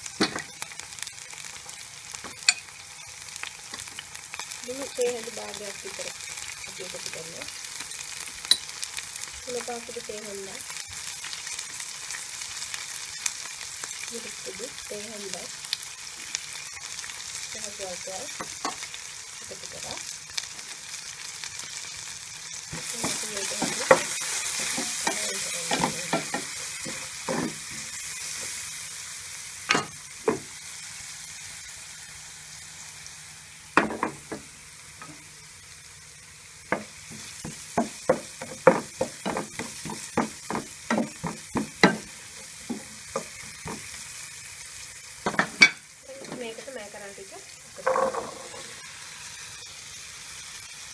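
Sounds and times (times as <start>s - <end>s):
vegetables sizzling in oil: 0.0s - 50.9s
spoon tapping and scraping pan: 8.4s - 8.7s, 22.7s - 28.0s, 29.7s - 30.5s, 36.7s - 44.0s, 45.2s - 46.5s, 47.8s - 48.6s.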